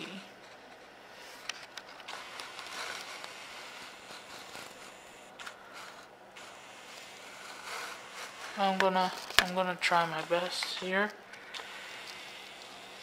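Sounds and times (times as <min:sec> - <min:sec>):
handling rustling and scraping: 0:00.2 - 0:13.0.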